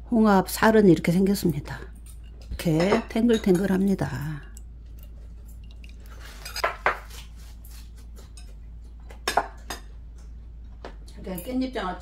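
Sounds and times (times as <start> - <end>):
metal utensils clinking on dishes: 2.0 - 6.8.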